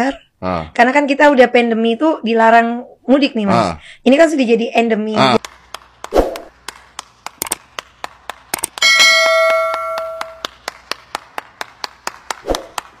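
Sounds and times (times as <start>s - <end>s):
fast hand clapping: 5.4s - 13.0s
notification ding: 8.8s - 10.4s.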